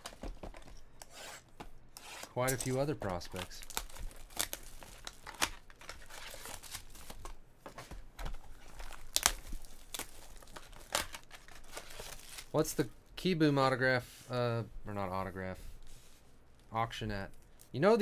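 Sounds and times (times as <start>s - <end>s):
wrappers crinkling and tearing: 2.4s - 7.3s, 8.4s - 12.6s.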